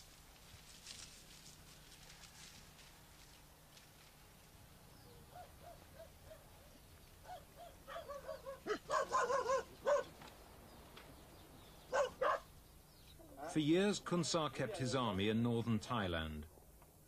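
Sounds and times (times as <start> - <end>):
dog yipping and barking: 5.3 - 6.6, 7.2 - 10.1, 11.9 - 12.5.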